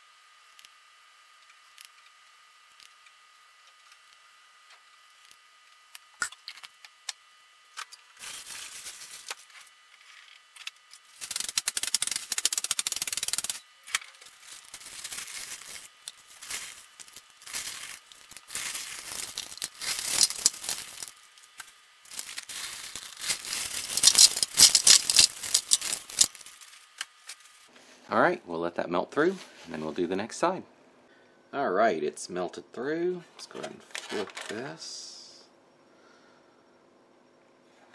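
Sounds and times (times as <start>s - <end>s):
ice rattling in plastic bag: 8.2s - 9.3s, 11.2s - 13.6s, 14.3s - 21.2s, 22.1s - 26.7s.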